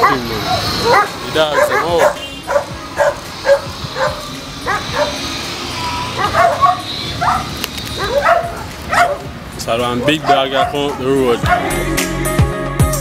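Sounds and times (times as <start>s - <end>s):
dog barking: 0.0s - 5.3s, 6.1s - 9.4s, 10.0s - 11.8s.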